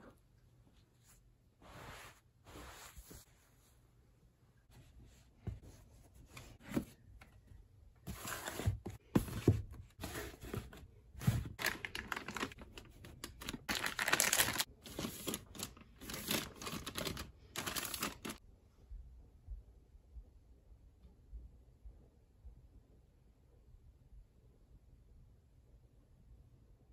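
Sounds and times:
plastic wrapping crinkling: 11.5 - 18.4.

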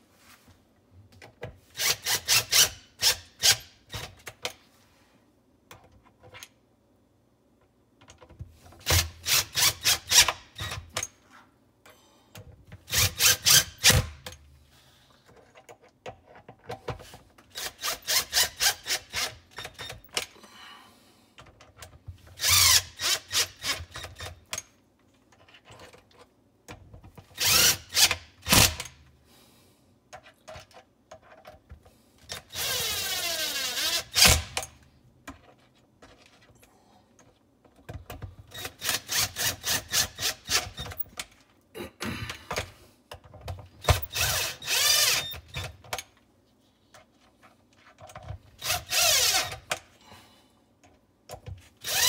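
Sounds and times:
cordless drill turning screws: 1.7 - 4.1, 8.8 - 10.8, 12.9 - 14.1, 17.5 - 20.1, 22.4 - 24.4, 27.4 - 28.9, 32.3 - 34.6, 38.5 - 41.1, 43.8 - 45.7, 48.6 - 49.7, 51.8 - 52.0.

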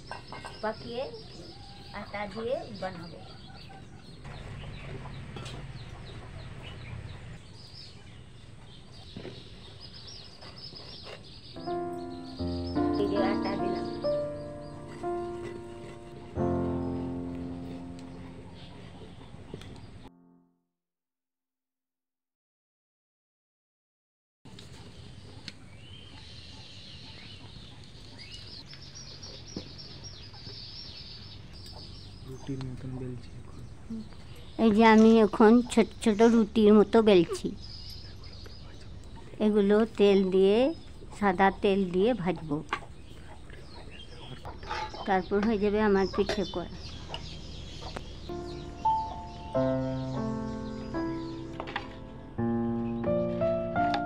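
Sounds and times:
chickens clucking: 0.0 - 7.4, 8.1 - 19.9, 40.9 - 52.2
small birds chirping: 0.0 - 20.2, 24.5 - 54.0.

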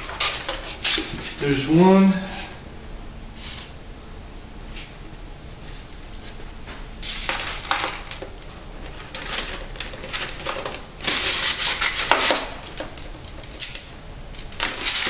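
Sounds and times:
foam parts rubbing and scraping: 9.0 - 13.6, 14.4 - 15.0.

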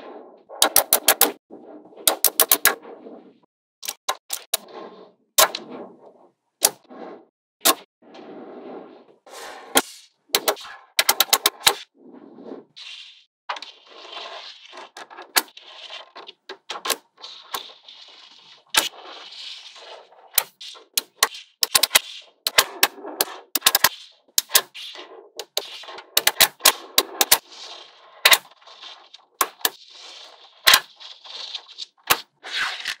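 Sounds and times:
balls rolling and knocking: 0.0 - 33.0.

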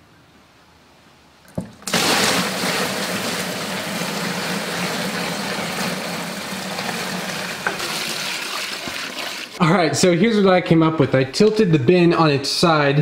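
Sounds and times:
liquid pouring into plastic bin: 1.5 - 9.6.

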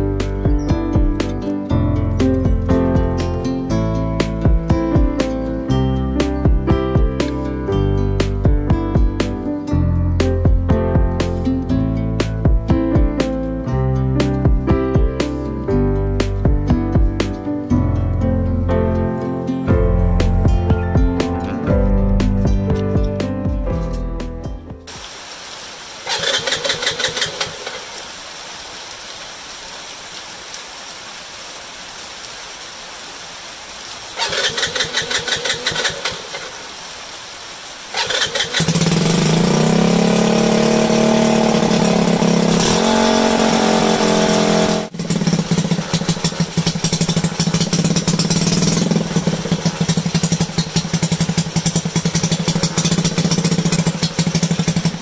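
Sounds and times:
moped engine starting and idling: 26.1 - 27.9, 34.2 - 36.5, 37.9 - 55.0.

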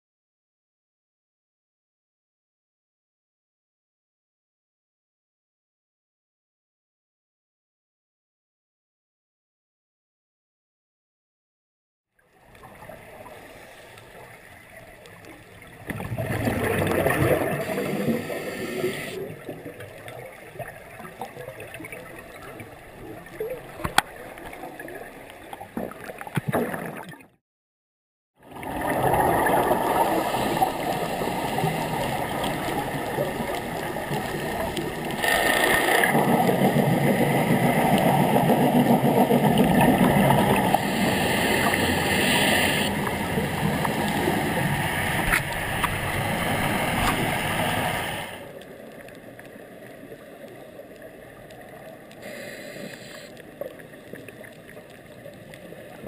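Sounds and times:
muffled underwater bubbling: 14.6 - 27.4, 28.4 - 48.4.

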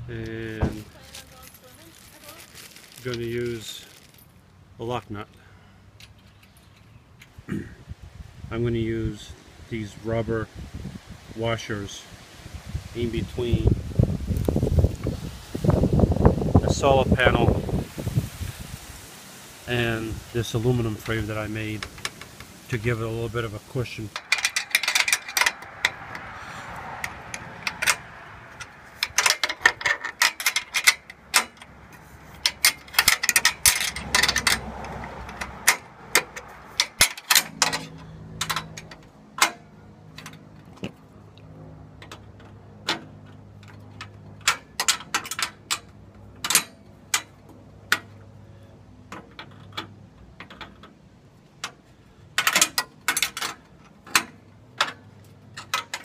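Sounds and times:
metallic clicks of hand tools: 24.2 - 26.3, 28.6 - 40.4, 42.0 - 48.2, 52.4 - 56.0.

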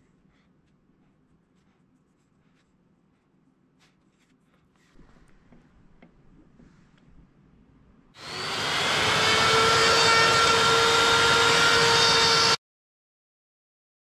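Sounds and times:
trim router whine: 8.2 - 12.6.

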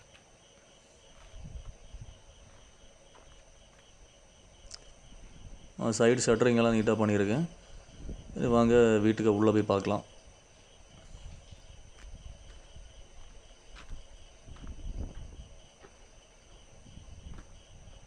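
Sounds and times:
footsteps on rubble: 2.4 - 4.0, 11.9 - 16.0, 17.3 - 17.6.

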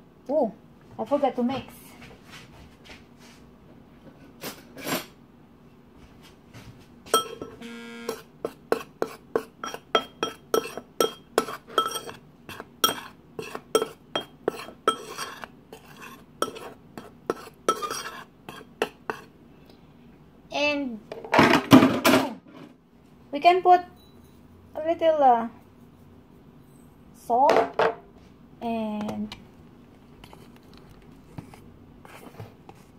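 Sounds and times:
metal spoon clinking in ceramic bowl: 7.2 - 7.6, 9.6 - 15.5.

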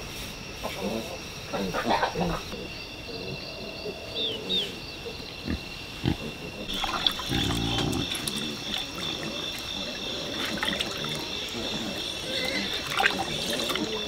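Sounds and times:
high buzz of insects: 0.0 - 14.0
farm animal grunting: 5.4 - 14.0.

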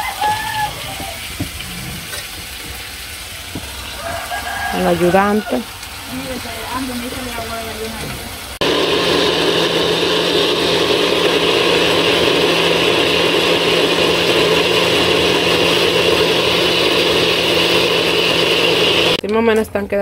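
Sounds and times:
blender running: 3.4 - 19.2.

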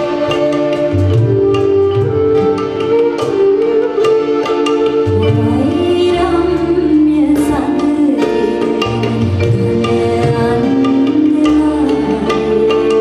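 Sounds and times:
hand drum: 0.0 - 13.0
violin: 0.0 - 13.0
woman singing: 5.1 - 13.0.

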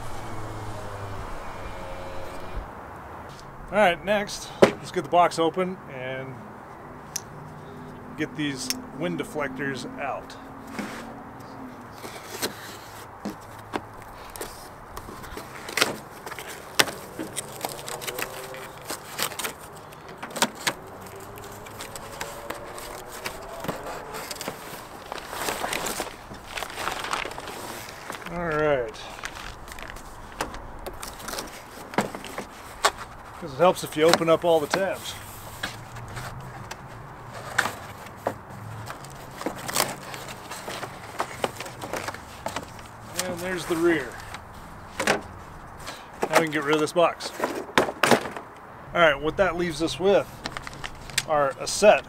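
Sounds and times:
steady low hum: 0.0 - 2.9
packing paper rustling: 14.2 - 28.4, 29.0 - 33.1, 50.3 - 51.3
cardboard box being opened: 15.2 - 28.4.

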